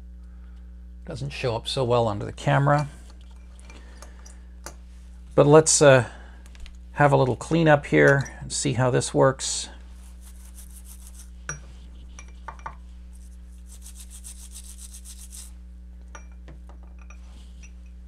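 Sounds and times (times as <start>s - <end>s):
toothbrush scrubbing: 10.0s - 11.3s, 13.1s - 15.5s.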